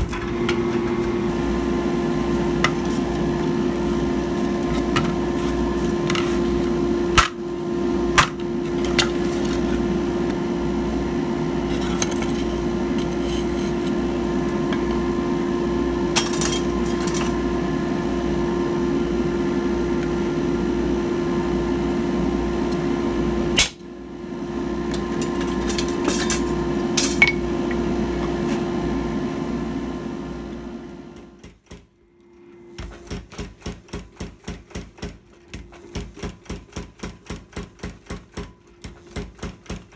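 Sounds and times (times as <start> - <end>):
droning hum: 0.0 - 31.4.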